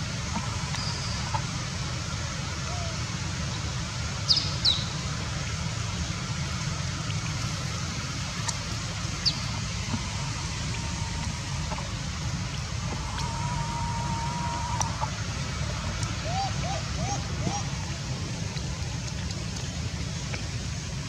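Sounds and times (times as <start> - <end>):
steady low rumble: 4.9 - 21.0.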